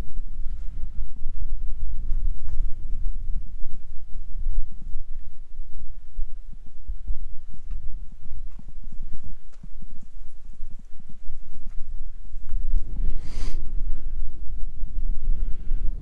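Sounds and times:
wind rumbling on microphone: 0:00.0 - 0:16.0
footsteps on a trail: 0:07.6 - 0:13.4.

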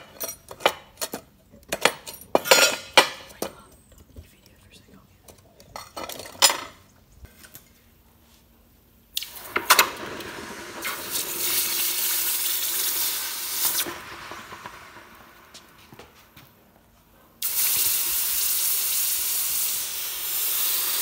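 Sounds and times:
hot metal hissing in water: 0:09.2 - 0:15.5, 0:17.4 - 0:21.0.

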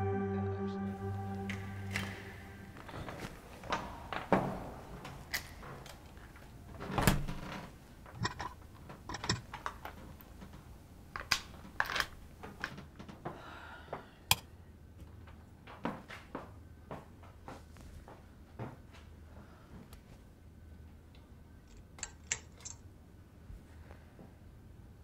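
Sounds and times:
door opening and shutting: 0:06.8 - 0:08.4.

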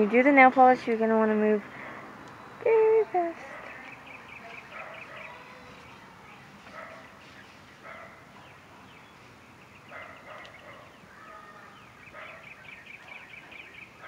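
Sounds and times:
faint dogs barking: 0:03.3 - 0:09.1, 0:09.8 - 0:14.0.

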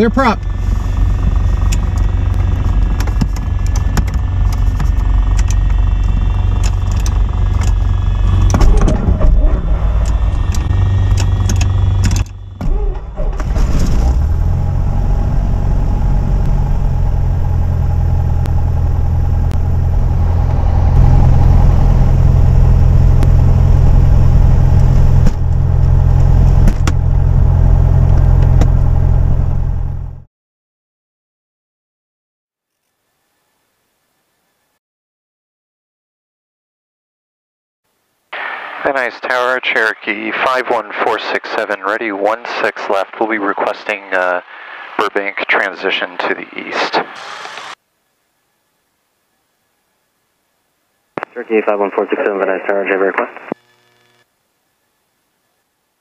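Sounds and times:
piston engine starting and idling: 0:00.3 - 0:30.2.

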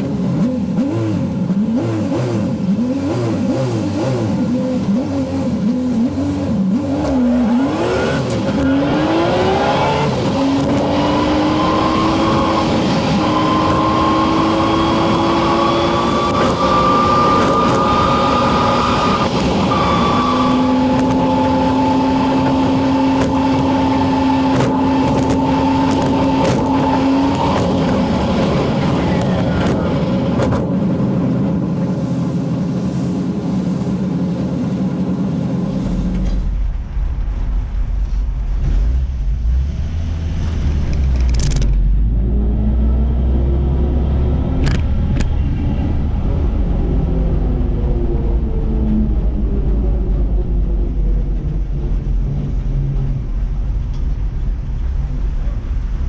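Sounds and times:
truck engine accelerating: 0:00.0 - 0:56.0.

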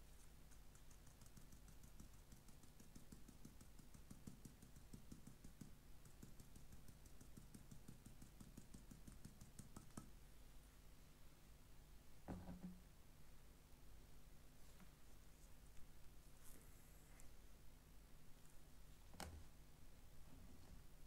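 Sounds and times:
shaker rattling and tapping: 0:00.0 - 0:10.1.

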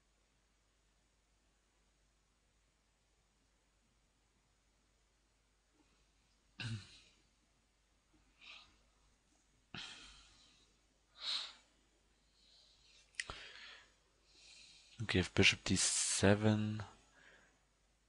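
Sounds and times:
person breathing and sighing: 0:06.6 - 0:07.2, 0:09.7 - 0:11.7, 0:12.3 - 0:15.0.

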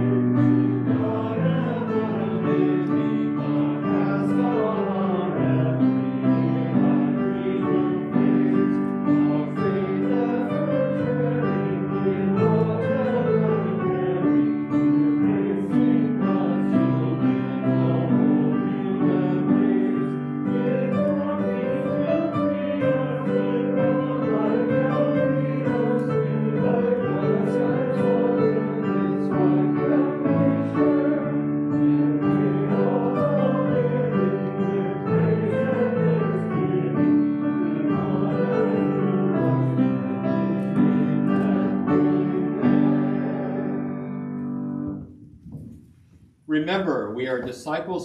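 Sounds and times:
congregation singing a hymn: 0:00.0 - 0:45.8
piano accompaniment: 0:00.0 - 0:48.0.

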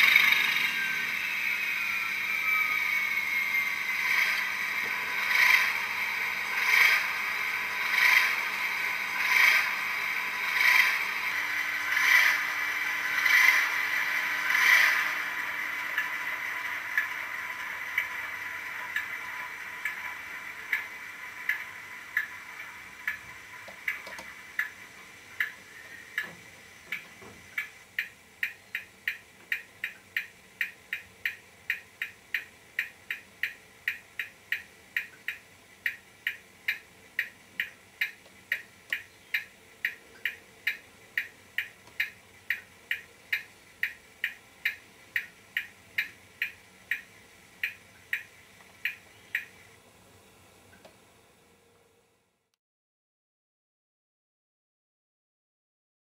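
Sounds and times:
model locomotive engine sound: 0:00.0 - 0:49.9
regular ticking: 0:11.9 - 0:24.8, 0:25.4 - 0:49.5.

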